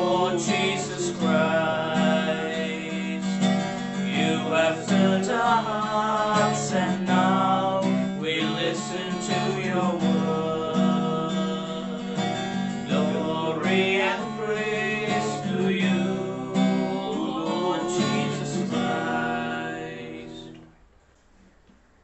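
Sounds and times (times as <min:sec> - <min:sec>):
acoustic guitar strumming: 0:00.0 - 0:20.6.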